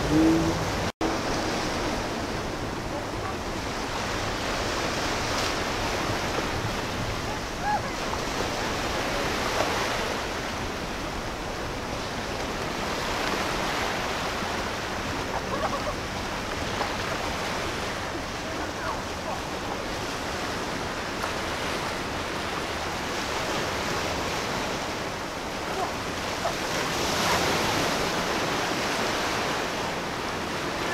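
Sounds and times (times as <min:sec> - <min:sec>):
choppy water rushing and churning: 0:00.0 - 0:30.9.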